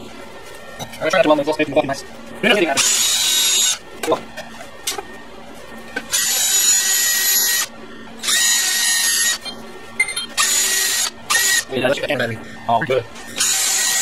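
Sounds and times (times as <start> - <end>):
drill with wire brush whining: 2.7 - 3.8, 6.1 - 9.5, 10.4 - 11.8, 13.2 - 14.0.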